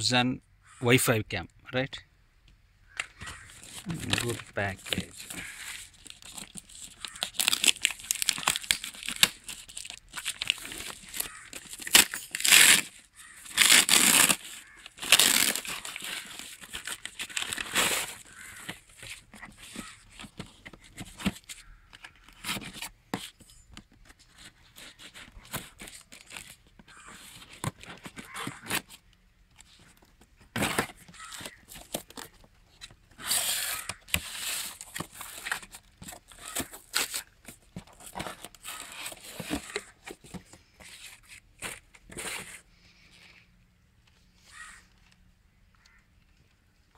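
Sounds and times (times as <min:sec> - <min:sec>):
paper and packing tape tearing: 0:03.3 - 0:22.9, 0:24.4 - 0:29.0, 0:30.6 - 0:32.3, 0:33.2 - 0:40.0.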